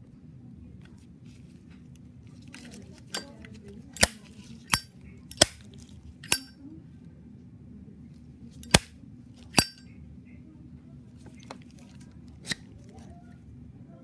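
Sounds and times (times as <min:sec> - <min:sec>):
lighter lid metallic clicks: 0:06.2 - 0:06.5.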